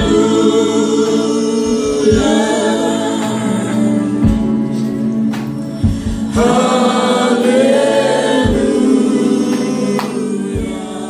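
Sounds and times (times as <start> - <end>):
band accompaniment: 0.0 - 11.0
group singing gospel song: 0.0 - 11.0
drum hits: 5.8 - 7.6, 8.4 - 9.0.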